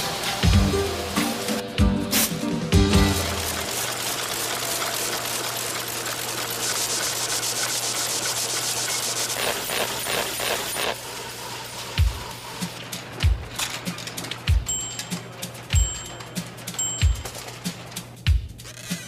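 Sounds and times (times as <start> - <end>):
machinery humming with hiss: 0.0 - 18.3
fast machine clatter: 3.1 - 19.0
rhythmic machine knocks: 12.0 - 18.6.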